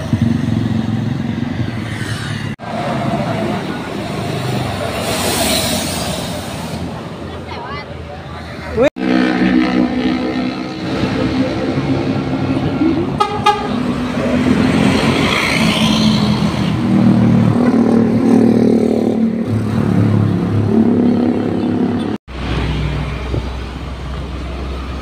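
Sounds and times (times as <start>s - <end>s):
bus engine passing: 0.0s - 25.0s
bus horn blasts: 13.2s - 13.8s.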